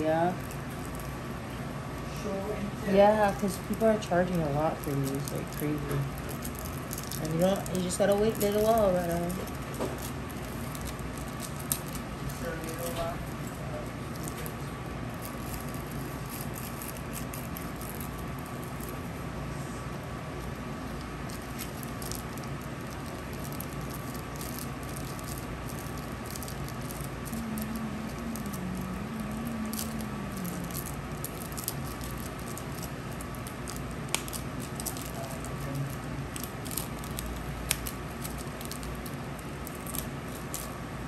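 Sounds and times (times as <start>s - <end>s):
steady background hum: 0.0s - 41.0s.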